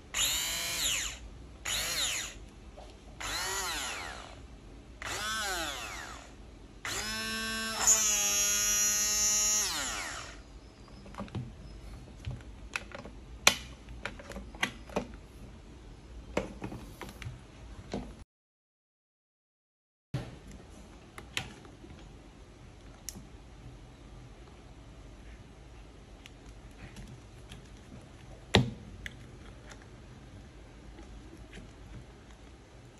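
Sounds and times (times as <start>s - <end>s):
hand blender motor: 0.2s - 2.4s, 3.2s - 4.4s, 6.9s - 10.4s.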